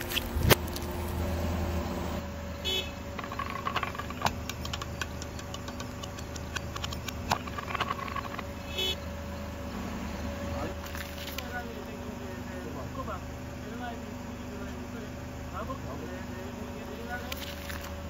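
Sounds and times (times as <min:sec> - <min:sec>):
tyre crackling over grit: 0:00.0 - 0:01.7
car engine humming: 0:00.0 - 0:18.0.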